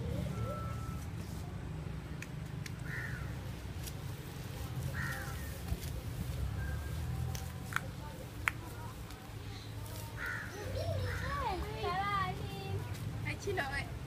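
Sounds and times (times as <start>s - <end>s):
crow cawing: 2.8s - 3.4s, 4.9s - 5.5s, 10.2s - 11.3s.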